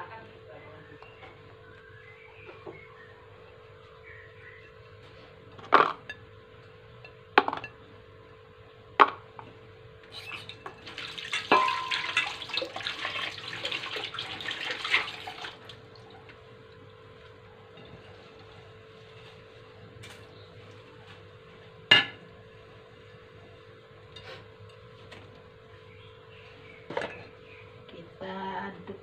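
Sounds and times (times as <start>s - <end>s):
running water: 10.1s - 16.4s
dishes clattering: 10.2s - 13.2s.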